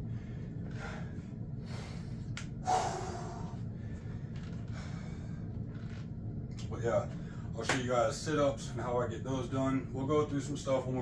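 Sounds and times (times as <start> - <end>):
man breathing hard: 0.0 - 5.8
steady low hum: 0.0 - 11.0.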